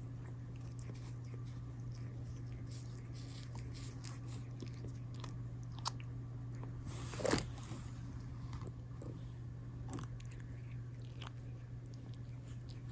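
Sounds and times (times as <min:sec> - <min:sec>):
steady low hum: 0:00.0 - 0:12.9
cat tongue licking hand: 0:00.1 - 0:05.1.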